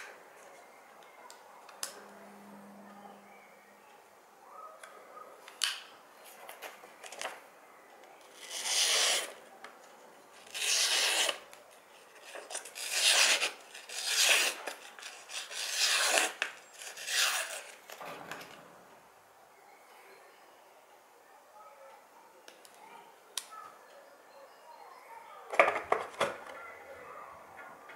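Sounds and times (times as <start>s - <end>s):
knife slicing paper: 8.3s - 9.4s, 10.4s - 11.5s, 12.2s - 17.8s.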